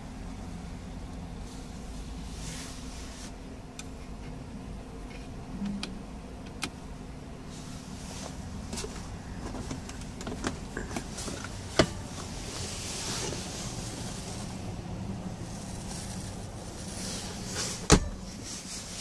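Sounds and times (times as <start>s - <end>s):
low cabin hum: 0.0s - 19.0s.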